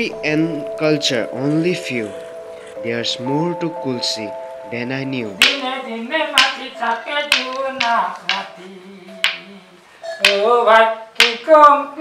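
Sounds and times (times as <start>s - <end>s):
person singing a melody: 0.0s - 12.0s
sharp snap on the beat: 5.4s - 5.7s, 6.4s - 6.7s, 7.3s - 8.5s, 9.2s - 9.5s, 10.2s - 10.5s, 11.2s - 11.5s.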